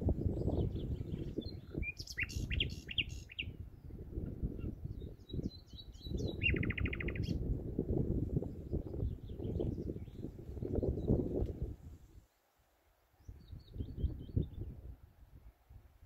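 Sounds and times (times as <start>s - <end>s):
nightingale singing: 0.1s - 4.0s, 4.6s - 7.4s.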